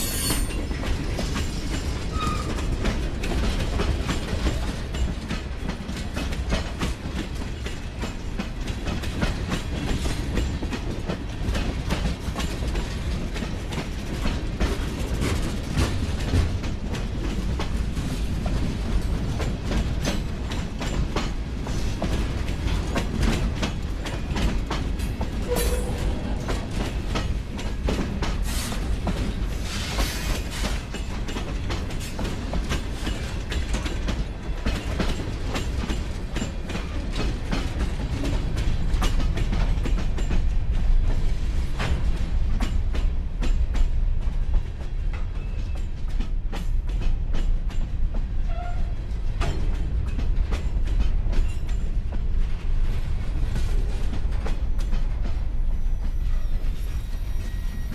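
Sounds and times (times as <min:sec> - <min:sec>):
freight train wheels rumbling: 0:00.0 - 0:57.9.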